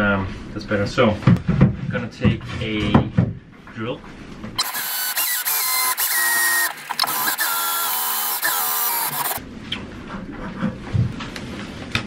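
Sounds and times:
cordless drill whining: 4.6s - 9.4s
mechanical clicks: 4.6s - 9.4s.

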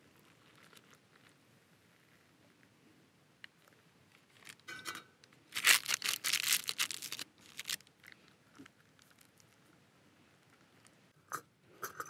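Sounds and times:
packet crinkling and tearing: 0.2s - 1.4s, 4.2s - 4.7s, 5.5s - 8.2s.

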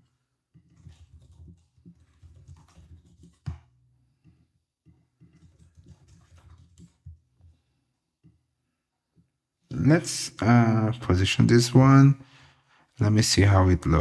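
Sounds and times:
typing on keyboard: 0.6s - 3.7s, 5.2s - 7.2s.

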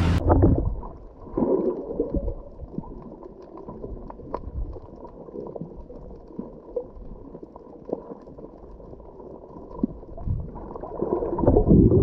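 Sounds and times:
boat motor: 0.0s - 0.6s
muffled underwater rumble: 0.0s - 12.0s
bubbling: 0.1s - 12.0s
wind noise: 11.4s - 12.0s.

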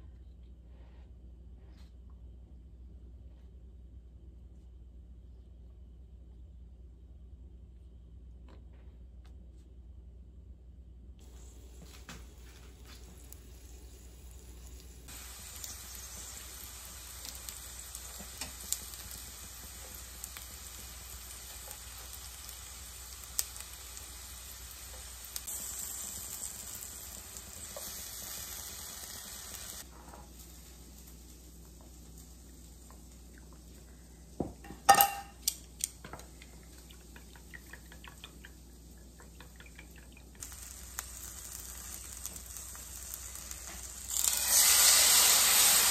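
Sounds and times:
oil popping and crackling: 11.2s - 28.8s, 34.9s - 45.9s
dumplings sizzling in oil: 11.2s - 45.9s.

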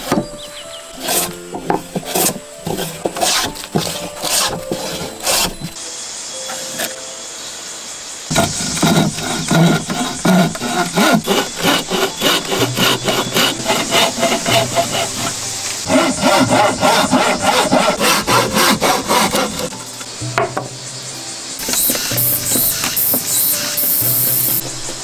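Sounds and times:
hand saw cutting wood: 1.0s - 5.7s, 8.3s - 19.8s, 21.6s - 24.6s.

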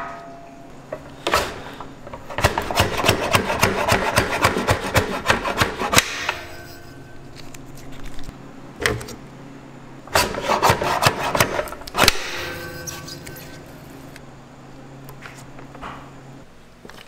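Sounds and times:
faint metallic ring: 0.0s - 0.8s, 6.4s - 7.3s, 12.4s - 13.9s.

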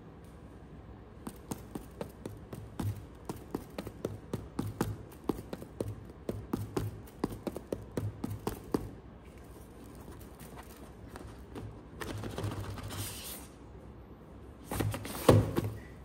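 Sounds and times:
fingertips tapping cardboard boxes: 1.2s - 9.0s, 14.7s - 15.9s.

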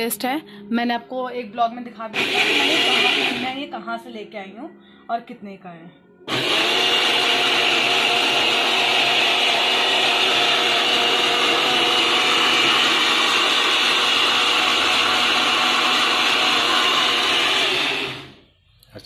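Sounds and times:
mixer grinder motor whine: 2.1s - 3.7s, 6.3s - 18.4s.

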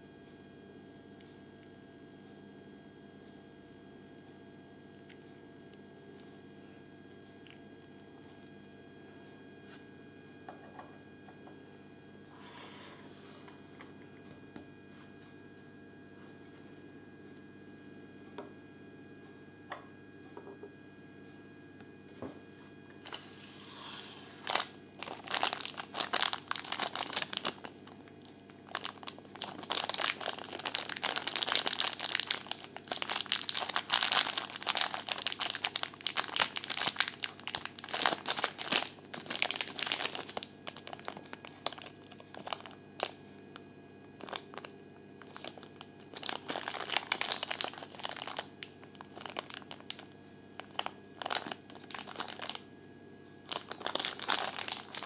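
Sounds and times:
plastic bag crinkling: 23.9s - 52.7s, 53.5s - 55.0s.

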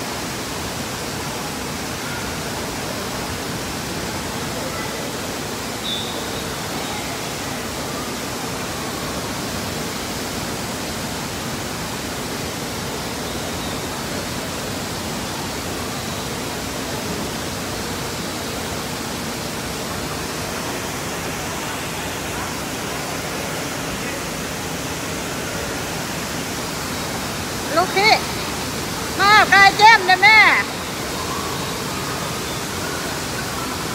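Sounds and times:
rushing water: 0.0s - 33.9s.

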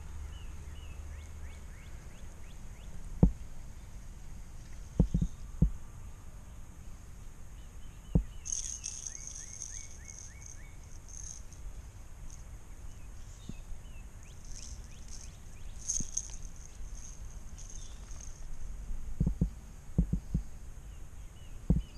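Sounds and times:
low wind rumble: 0.0s - 21.9s
birds chirping: 4.6s - 5.7s, 6.4s - 18.6s
high steady bird trill: 4.8s - 18.8s.

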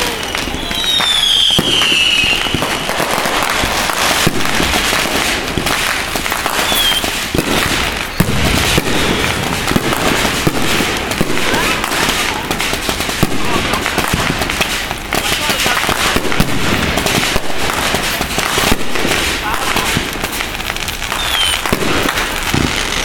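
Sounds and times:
firework whistle: 0.0s - 4.8s, 6.4s - 12.5s, 21.0s - 23.0s
fireworks bangs and crackles: 0.0s - 23.0s.

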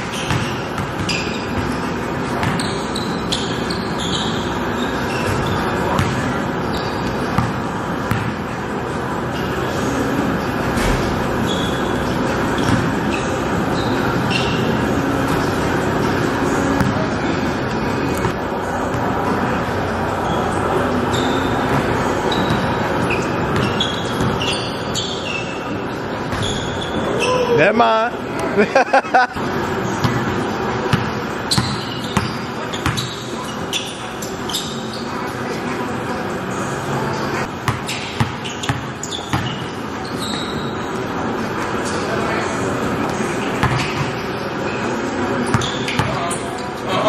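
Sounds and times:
basketball bouncing on gym floor: 0.0s - 2.8s, 5.2s - 6.4s, 7.0s - 8.4s, 12.6s - 13.0s, 16.8s - 17.1s, 21.6s - 24.5s, 30.0s - 33.2s, 37.5s - 39.6s, 43.1s - 44.2s, 45.5s - 46.3s
sneakers squeaking on court floor: 0.0s - 27.6s, 29.3s - 47.0s.

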